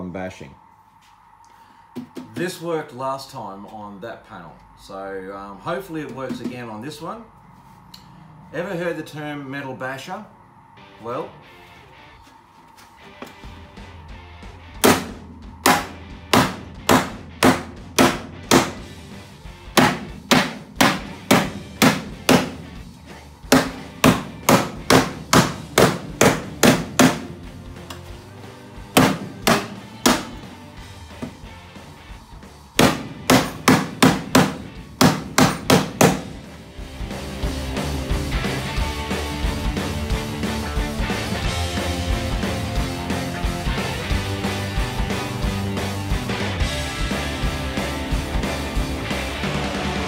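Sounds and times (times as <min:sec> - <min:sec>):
hammer striking sheet aluminium: 0:14.8 - 0:18.8, 0:19.8 - 0:22.6, 0:23.5 - 0:27.4, 0:29.0 - 0:30.4, 0:32.8 - 0:36.4.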